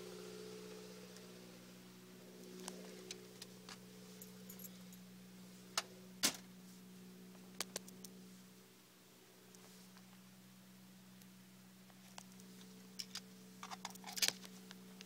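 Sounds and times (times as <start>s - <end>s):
car engine idling: 0.0s - 6.3s.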